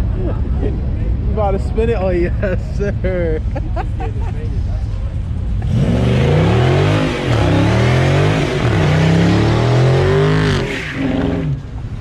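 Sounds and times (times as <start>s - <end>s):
car engine revving: 5.5s - 11.7s.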